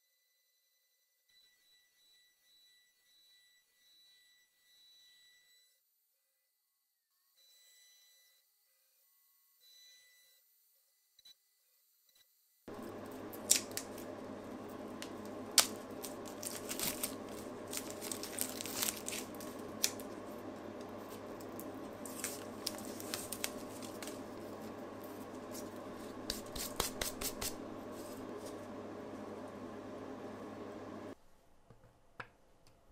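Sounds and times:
background hum: 12.7 - 32.9.

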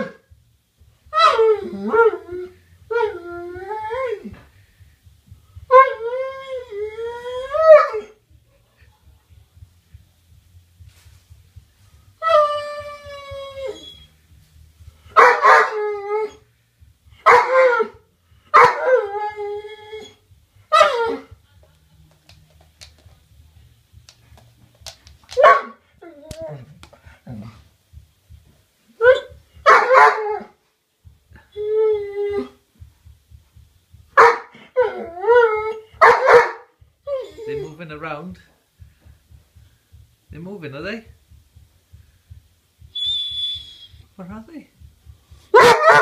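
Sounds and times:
dog whining: 5.7 - 8.2, 12.2 - 14.2, 18.6 - 21.3, 29.0 - 30.5, 31.4 - 32.6, 34.2 - 37.8, 43.0 - 44.1
dog barking: 15.2 - 15.8, 17.2 - 17.6, 25.4 - 25.8, 29.6 - 30.2, 34.2 - 34.5, 36.0 - 36.7, 45.5 - 46.0.

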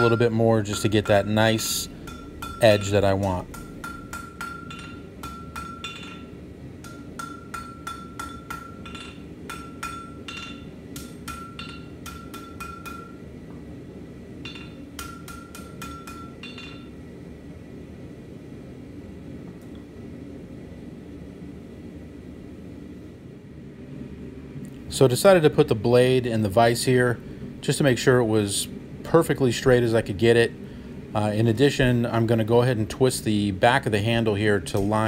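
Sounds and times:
hammer striking steel on an anvil: 0.0 - 13.2, 14.4 - 17.0, 34.7 - 35.0
steady low rumble: 0.0 - 15.6.

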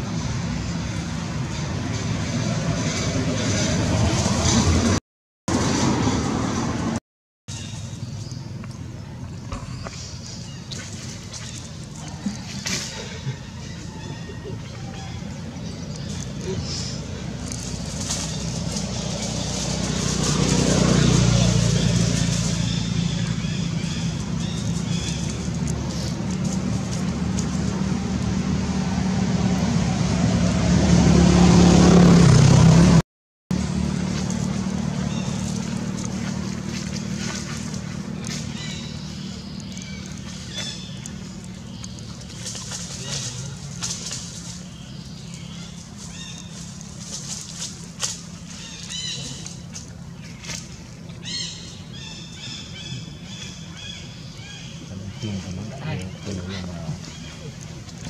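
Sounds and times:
vehicle engine running: 7.6 - 58.0
dry leaves crackling: 10.5 - 28.4, 33.6 - 54.8.

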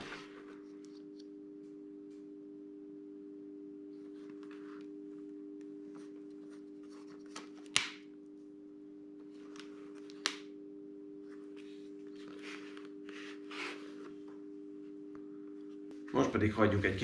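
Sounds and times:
steady hum: 0.0 - 17.0
rustling and scraping: 11.4 - 14.4.

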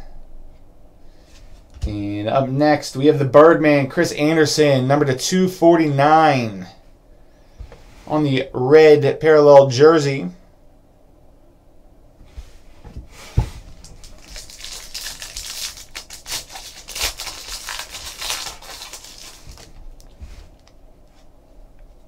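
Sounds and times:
thump: 12.8 - 13.6
foil pack tearing and crinkling: 13.8 - 20.7.

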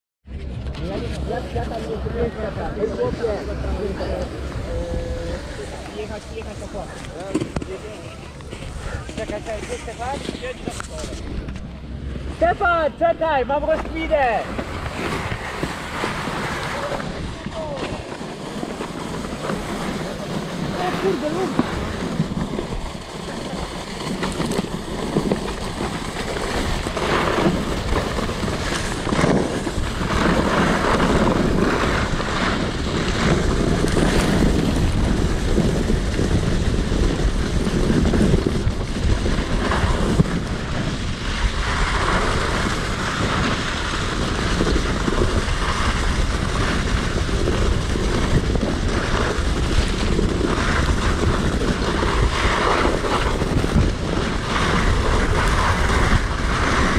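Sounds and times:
wind rushing over microphone: 0.2 - 56.9
skis hissing over snow: 2.8 - 11.2, 14.0 - 56.9.

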